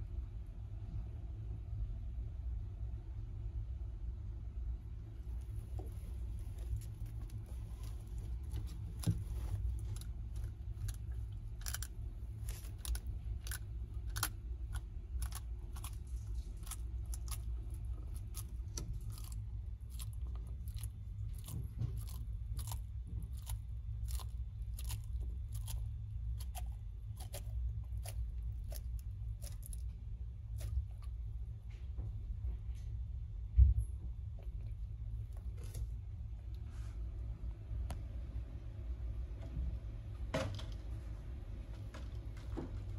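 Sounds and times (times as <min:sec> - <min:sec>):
steady low hum: 0:00.0 - 0:42.9
eggshells cracking: 0:08.2 - 0:29.8.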